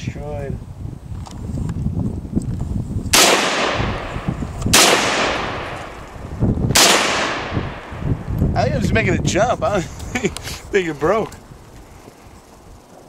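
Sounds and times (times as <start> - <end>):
rifle shots with echo: 3.1 - 6.0, 6.7 - 8.0.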